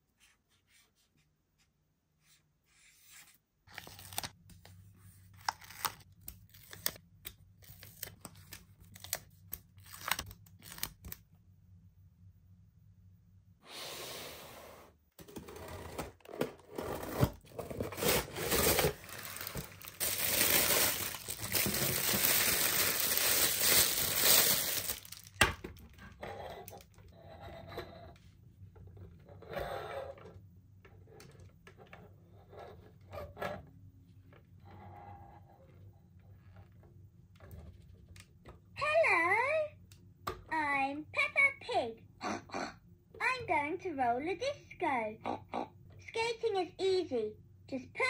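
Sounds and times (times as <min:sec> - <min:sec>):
packing wrap crinkling and tearing: 0:03.7 - 0:04.3, 0:07.6 - 0:11.2, 0:17.8 - 0:25.4.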